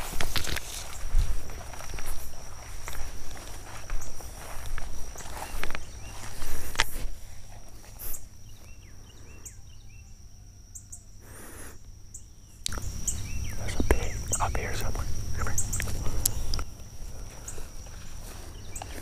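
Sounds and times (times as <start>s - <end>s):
rumbling rustle: 0.0s - 8.7s, 12.8s - 19.0s
footsteps crunching dry leaves: 0.0s - 8.8s, 15.7s - 19.0s
high insect drone: 0.0s - 19.0s
small birds chirping: 0.0s - 19.0s.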